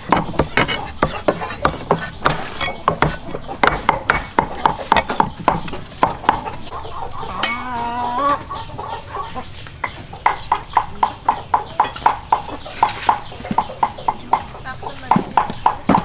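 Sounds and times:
knife chopping on wooden board: 0:00.0 - 0:06.5.

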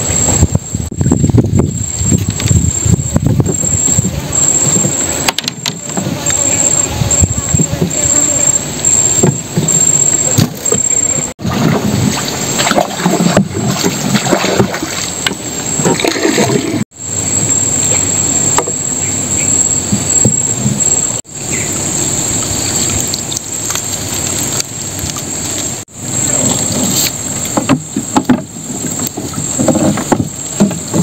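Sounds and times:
steady high whine: 0:00.0 - 0:31.0
water dripping and splashing: 0:11.4 - 0:16.8, 0:22.4 - 0:25.9.

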